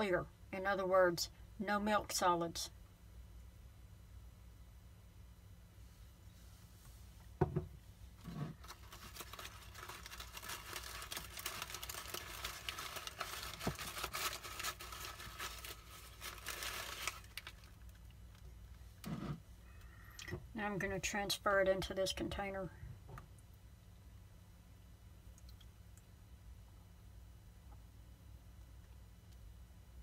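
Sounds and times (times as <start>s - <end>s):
paper filter crinkling: 8.2s - 18.4s.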